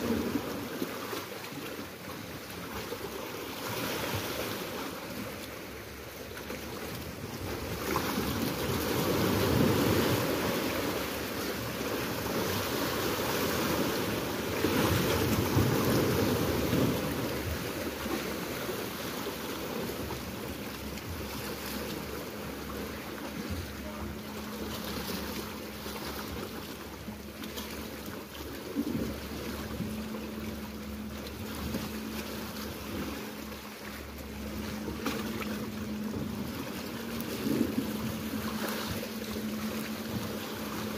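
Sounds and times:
steady low hum: 0.0s - 40.9s
waves breaking on rocky shore: 0.0s - 40.9s
wind on microphone: 34.4s - 40.9s.

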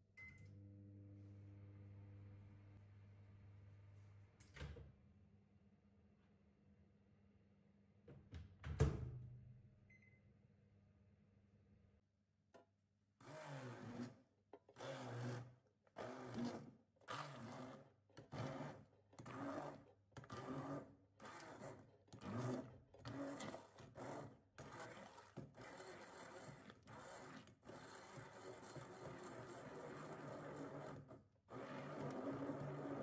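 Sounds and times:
immersion blender pulsing: 13.2s - 33.0s.

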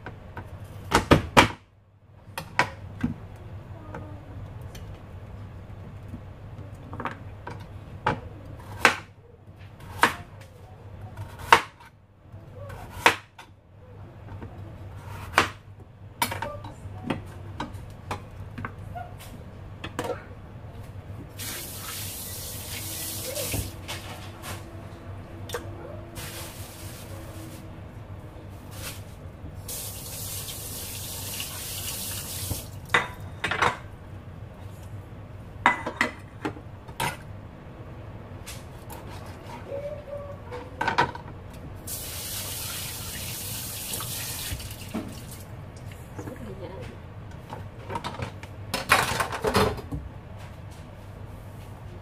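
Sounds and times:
kitchen tap running: 21.4s - 23.8s, 29.7s - 32.9s, 41.9s - 45.5s.

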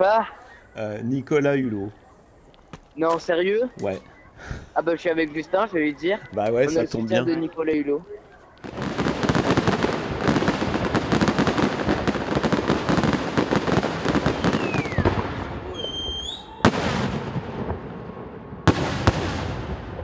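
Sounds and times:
fireworks crackling: 0.0s - 20.0s
firework bangs: 8.6s - 20.0s
falling whistle: 14.3s - 17.0s.

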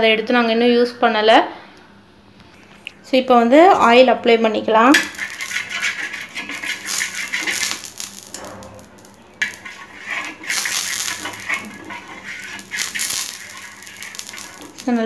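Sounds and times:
spoon scraping metal pan: 4.8s - 15.0s.

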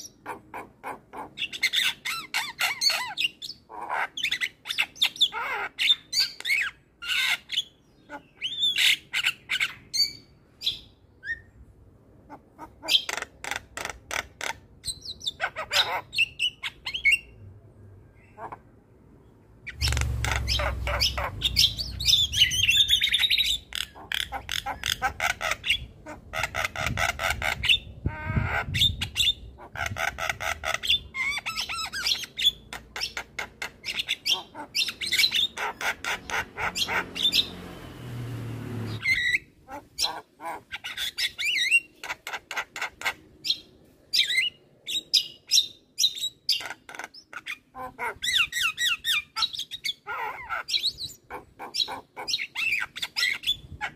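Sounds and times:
low rumble: 19.7s - 23.1s.

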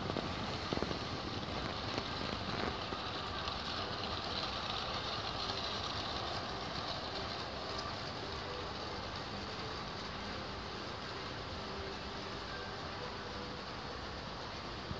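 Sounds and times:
toy train rolling on plastic track: 0.0s - 14.9s.

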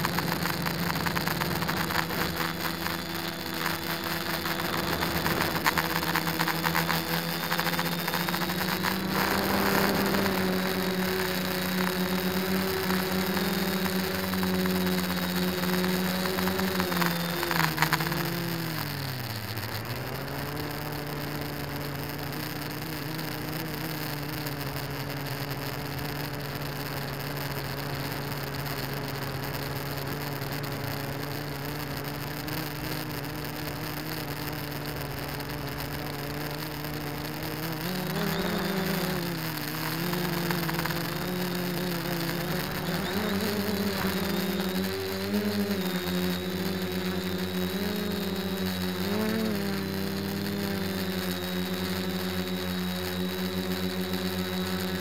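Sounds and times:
drone motors humming: 0.0s - 55.0s.

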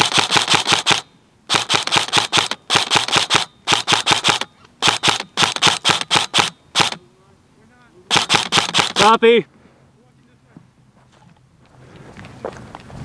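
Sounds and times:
airsoft rifle bursts: 0.0s - 7.0s, 8.1s - 9.3s.

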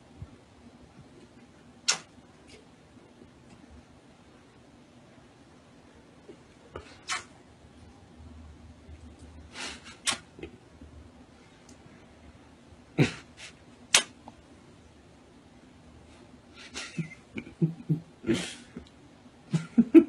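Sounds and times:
kissing lip smacks: 1.9s - 2.6s, 7.0s - 7.3s, 10.0s - 10.3s, 13.9s - 14.2s.

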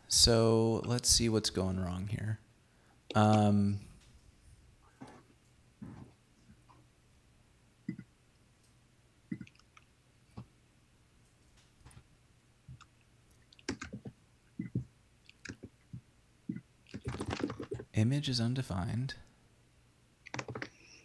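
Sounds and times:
keyboard keystrokes: 13.6s - 15.7s, 20.3s - 20.8s.

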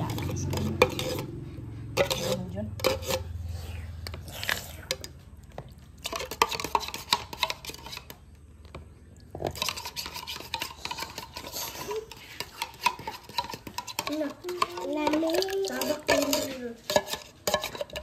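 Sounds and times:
utensils clinking on dishes: 9.4s - 18.0s.

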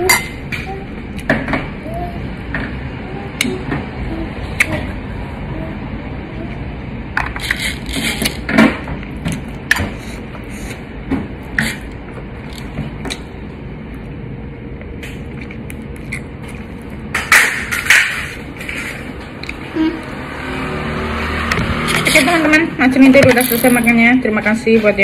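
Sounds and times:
mouth chewing and crunching: 14.8s - 17.1s.

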